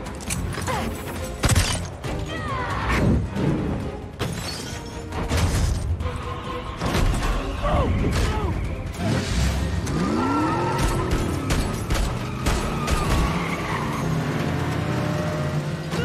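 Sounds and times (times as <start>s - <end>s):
action score music: 0.0s - 16.0s
car tyres skidding: 9.0s - 15.6s.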